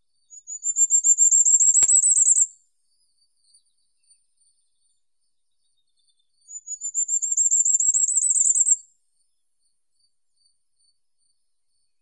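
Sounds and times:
high-pitched bird song: 0.3s - 2.5s, 5.6s - 8.8s.

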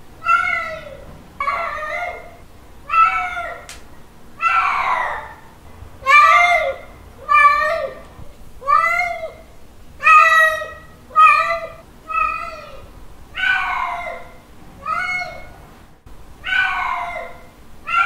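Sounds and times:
cat meowing: 10.0s - 12.8s, 13.4s - 15.5s, 16.4s - 18.0s.

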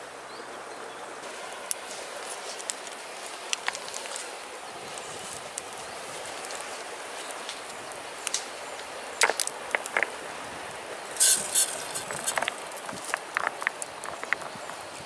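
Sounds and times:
steady background hiss: 0.0s - 15.0s
stones knocking together: 9.2s - 10.2s, 11.2s - 14.8s
scraping rustle: 11.2s - 14.6s.

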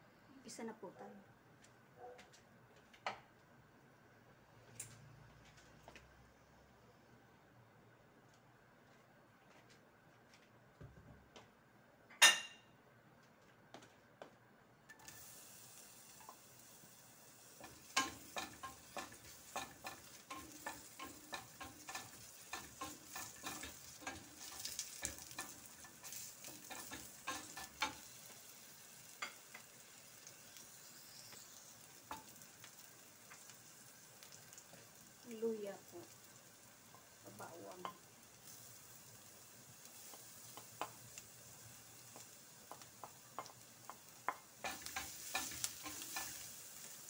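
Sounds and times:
onions sizzling in oil: 14.9s - 47.0s
wooden spoon clicking on pan: 37.8s - 38.0s, 42.1s - 46.4s.

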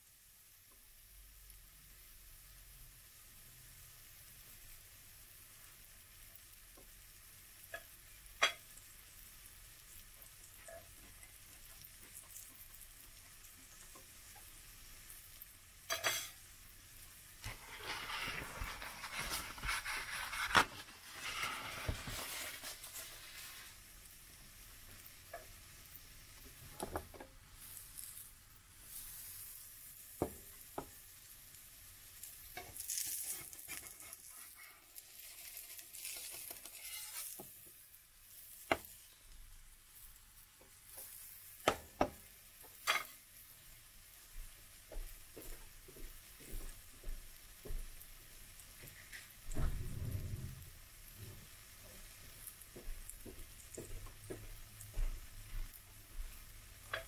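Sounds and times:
batter sizzling in frying pan: 0.0s - 57.0s
spatula scraping pan: 15.9s - 16.4s, 17.4s - 23.8s, 32.6s - 37.7s.

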